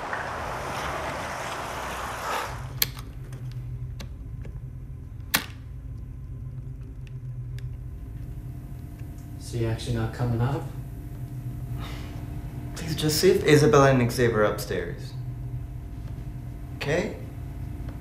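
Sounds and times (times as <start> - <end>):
street hiss: 0.0 - 2.8
steady low hum: 0.0 - 18.0.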